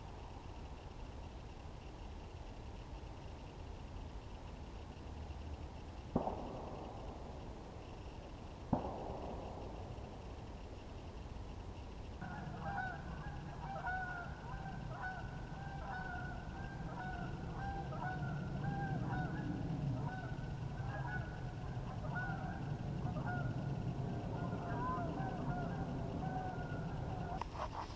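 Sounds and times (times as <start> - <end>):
geese honking: 12.2 - 27.4.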